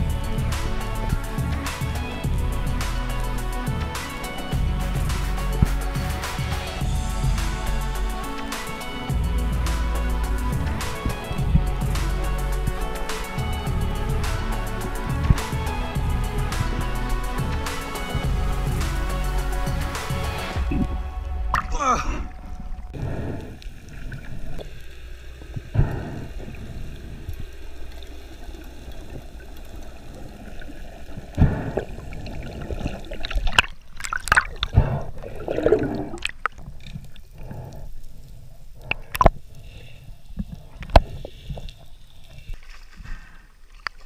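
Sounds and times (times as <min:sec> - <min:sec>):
water gurgling underwater: 0:20.6 - 0:37.8.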